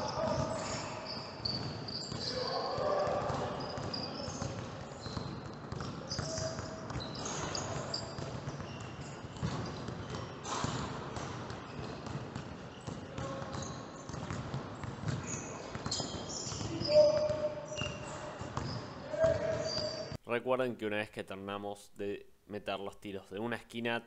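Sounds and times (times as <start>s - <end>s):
shoe squeaks: 0.0s - 10.8s, 11.6s - 14.4s, 15.0s - 20.2s
basketballs bouncing on court: 0.0s - 20.2s.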